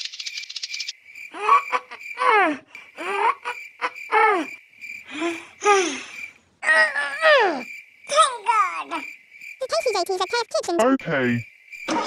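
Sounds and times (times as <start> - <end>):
squeaky cartoon voice calls: 9.6 - 11.0.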